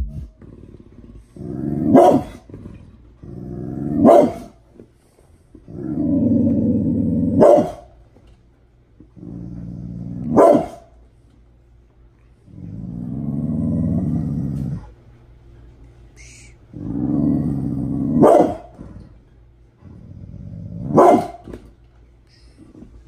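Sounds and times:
dog growling: 0.0 - 4.6, 5.5 - 7.8, 9.0 - 10.8, 12.4 - 15.0, 16.2 - 21.4
dog barking sharply: 7.4 - 7.8, 10.4 - 10.9, 21.0 - 21.4.

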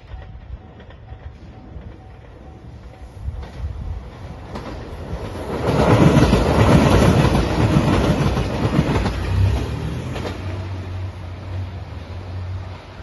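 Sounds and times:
train wheels clacking over rail joints: 4.4 - 10.8.

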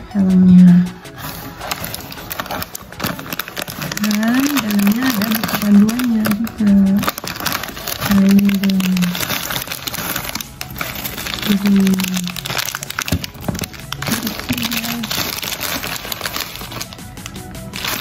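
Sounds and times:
packaging crinkling: 1.1 - 18.0.

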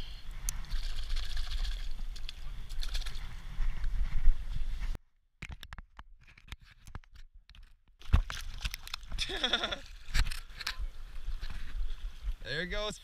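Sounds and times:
fish splashing in shallow water: 0.5 - 3.4
small clicks and crunches: 5.4 - 9.2.

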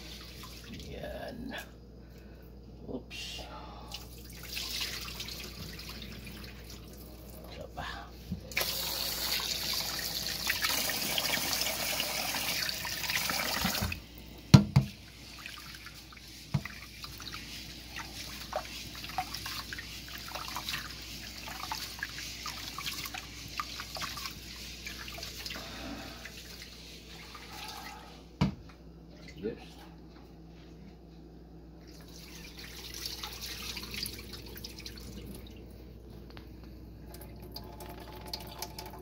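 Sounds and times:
water splashes and drips: 3.9 - 7.5, 14.8 - 27.9, 31.8 - 35.7, 37.0 - 39.0
hand swishing rice in water: 15.0 - 28.2.

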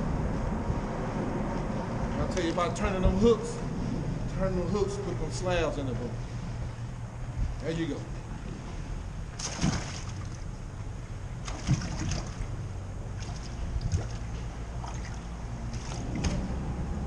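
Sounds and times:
wind rumble on microphone: 0.0 - 17.0
waves lapping against boat hull: 8.4 - 10.6, 11.4 - 16.6.

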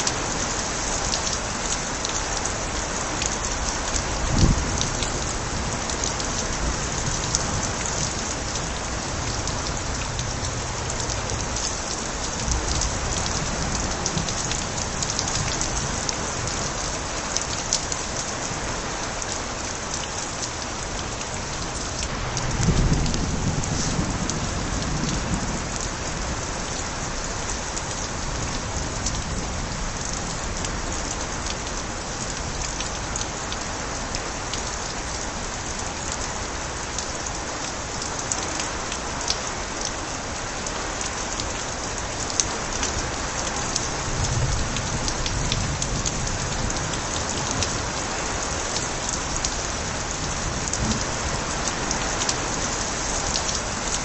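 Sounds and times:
steady rain: 0.0 - 54.0
water splashing from gutters: 0.0 - 54.0
low thunder rumbles: 4.1 - 15.6, 22.1 - 26.4, 50.4 - 51.6.

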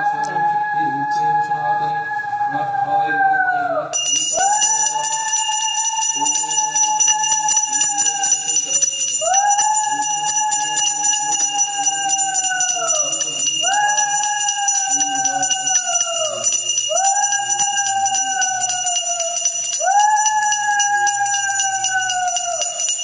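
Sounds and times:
hand bell rung rapidly: 4.0 - 23.0.

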